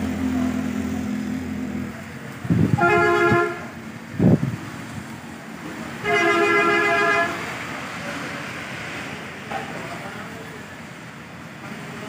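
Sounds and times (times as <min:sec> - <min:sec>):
traffic on a wet road: 0:00.0 - 0:12.0
vehicle horn honking: 0:02.7 - 0:03.7, 0:06.0 - 0:07.4.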